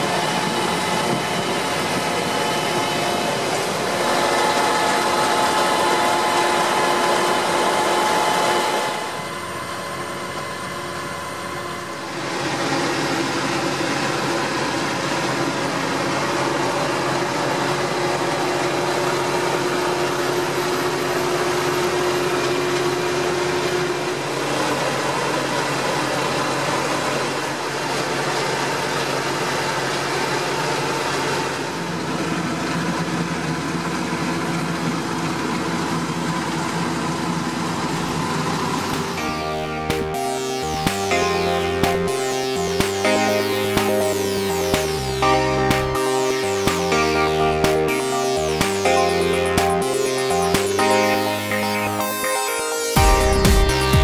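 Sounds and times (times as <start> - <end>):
tractor engine running: 37.0 - 51.5.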